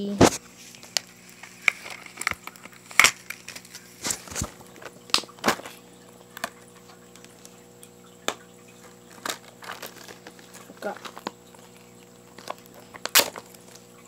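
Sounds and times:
faint steady hum: 0.0 - 14.0
plastic case clicking and scraping: 0.2 - 6.6, 9.1 - 13.7.

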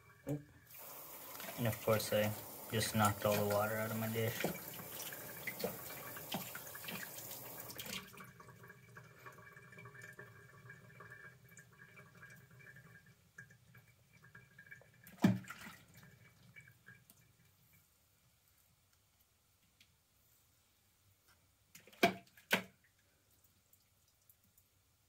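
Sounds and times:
tap running into sink: 0.8 - 8.0.

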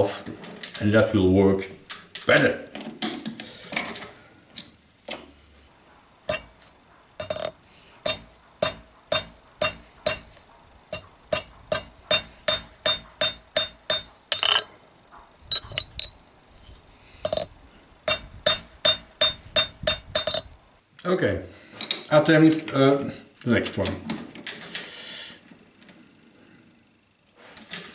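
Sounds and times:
hammer striking metal on anvil: 6.3 - 14.7, 18.1 - 20.6.

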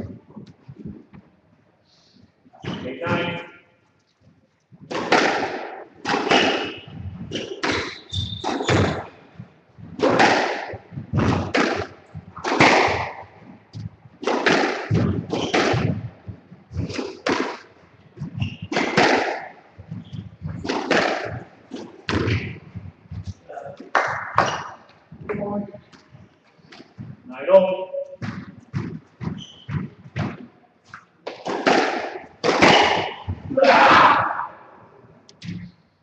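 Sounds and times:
squash ball cracks echoing: 4.9 - 9.1, 9.9 - 16.2, 16.8 - 17.8, 18.6 - 19.8, 20.4 - 22.8, 23.8 - 24.9, 28.2 - 34.7.

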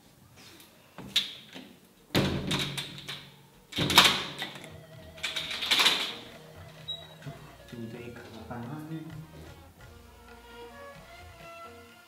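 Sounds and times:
quiet background music: 0.0 - 12.0
stall door banging and rattling: 2.1 - 6.4.

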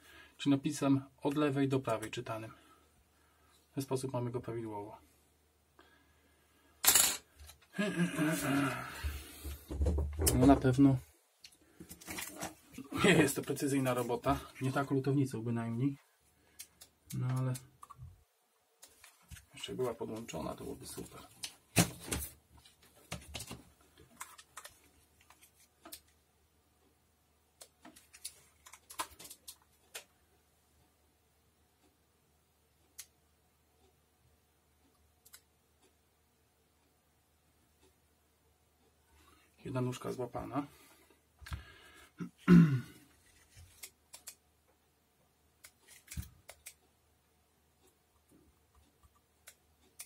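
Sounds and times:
person vocal noise: 7.8 - 9.2.

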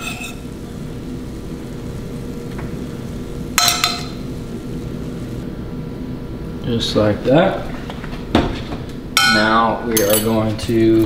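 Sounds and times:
low background hum: 0.0 - 11.0
metal fork clinking on cookware: 9.2 - 10.4.

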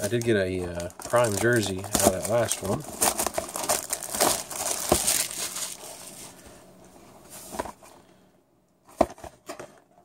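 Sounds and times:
cardboard box rustling: 1.1 - 6.4.

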